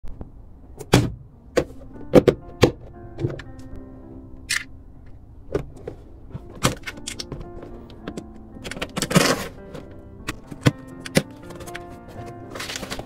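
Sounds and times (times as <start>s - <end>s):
soft background music: 0.5s - 13.0s
packaging knocks and clicks: 6.4s - 13.0s.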